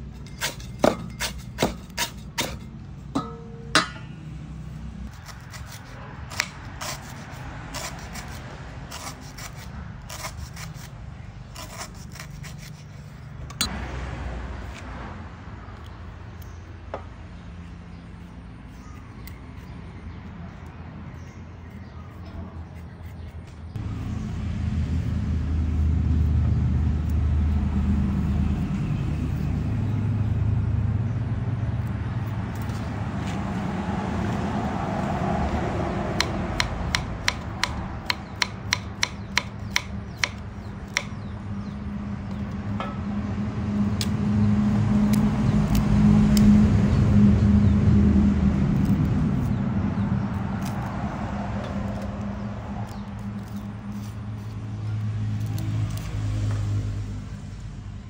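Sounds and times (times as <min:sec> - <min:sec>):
knife chopping on wooden board: 0:00.4 - 0:02.6, 0:36.2 - 0:41.3
steady low rumble: 0:23.7 - 0:38.4, 0:40.4 - 0:54.8.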